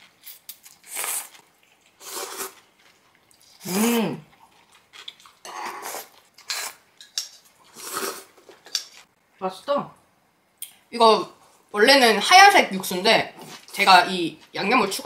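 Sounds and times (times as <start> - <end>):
person slurping noodles: 2.0 - 2.6, 3.6 - 4.2, 5.5 - 6.8, 7.7 - 8.4.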